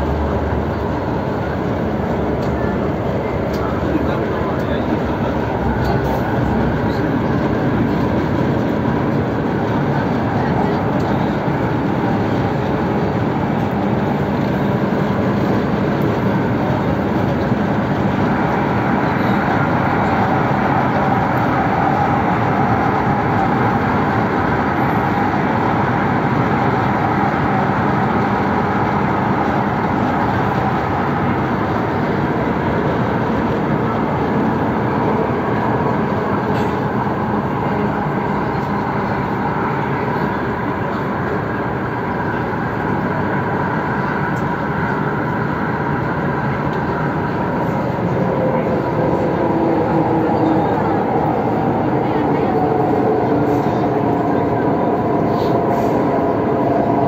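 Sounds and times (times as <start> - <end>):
train wheels rumbling on rail: 0.0 - 57.0.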